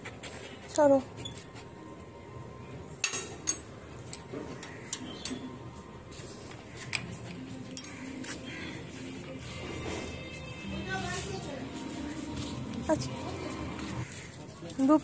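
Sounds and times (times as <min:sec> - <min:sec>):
light clicks and metallic clinks: 0:07.6 - 0:08.1.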